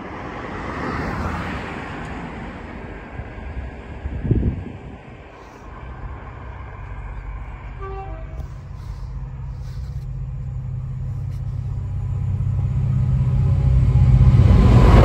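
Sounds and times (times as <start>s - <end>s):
train locomotive rumble: 0.0s - 15.0s
distant train horn: 7.0s - 13.4s.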